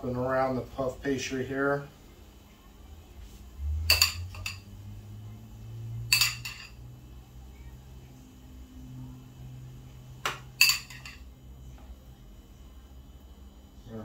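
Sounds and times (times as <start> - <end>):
low steady hum: 0.0 - 14.0
fork clinking against bowl: 6.1 - 6.7.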